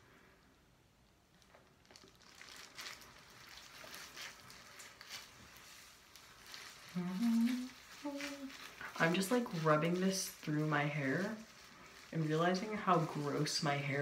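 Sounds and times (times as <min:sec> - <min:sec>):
gloves rustling on wet hair: 0:01.2 - 0:14.0
person humming: 0:06.9 - 0:08.6.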